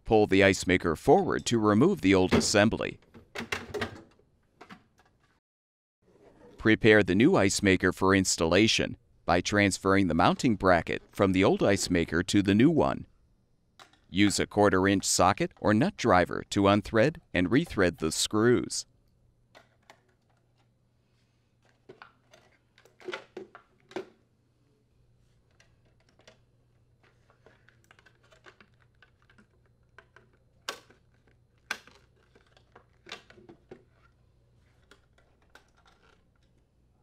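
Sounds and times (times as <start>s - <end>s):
hand tools clicking on plastic: 27.4s - 33.9s.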